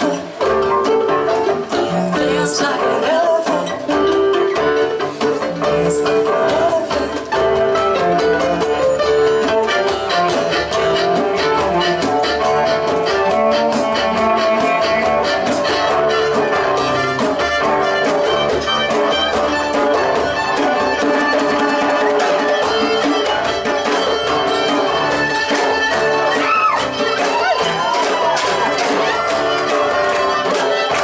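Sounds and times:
hand drum beat: 0.0s - 31.0s
fiddle melody: 7.5s - 31.0s.

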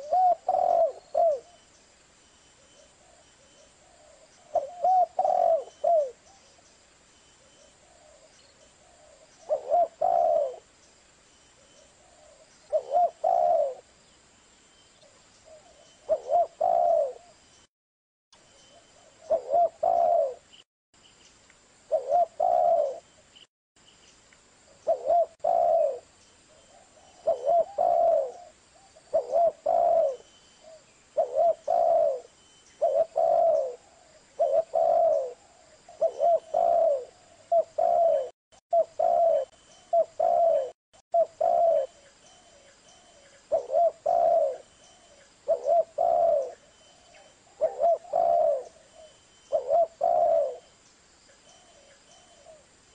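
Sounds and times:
dove cooing: 0.0s - 1.6s, 3.8s - 6.4s, 7.8s - 10.7s, 11.8s - 13.9s, 15.5s - 17.4s, 19.0s - 20.5s, 21.9s - 23.1s, 24.8s - 50.7s.

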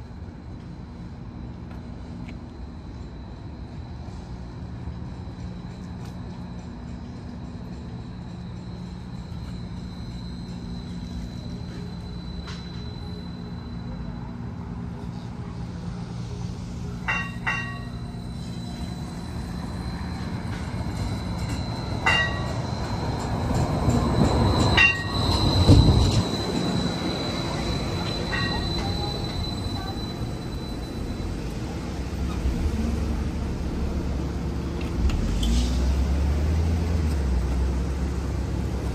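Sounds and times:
tram rumbling past: 0.0s - 38.9s
short metallic dings: 17.1s - 18.0s
high-pitched wheel squeal: 17.4s - 31.6s.

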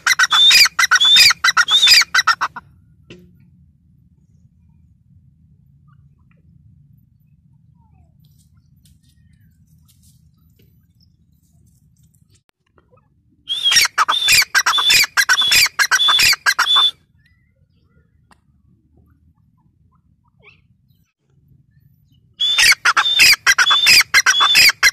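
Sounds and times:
bird calling shrill notes: 0.0s - 2.5s, 13.5s - 17.5s, 22.4s - 24.9s.

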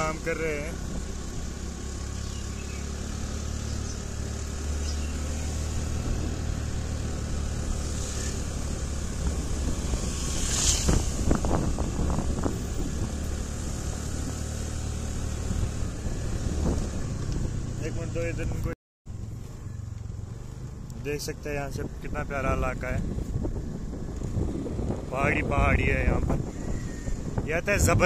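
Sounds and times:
motorcycle engine running: 0.0s - 21.2s
wind noise on microphone: 9.0s - 13.4s, 15.4s - 17.7s, 21.8s - 28.0s.

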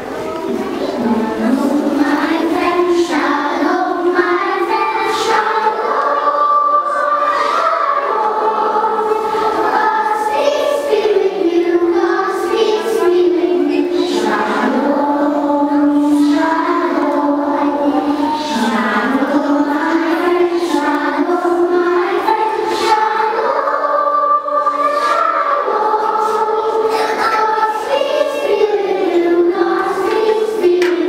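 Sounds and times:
children singing in unison: 0.0s - 31.0s.

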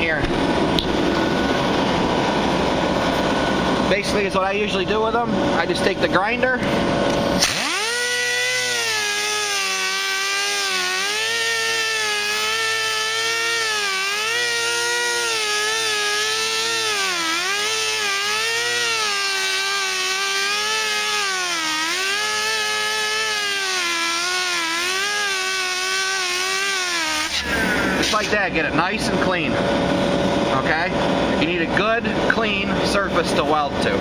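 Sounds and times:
angle grinder grinding metal: 7.1s - 28.5s.

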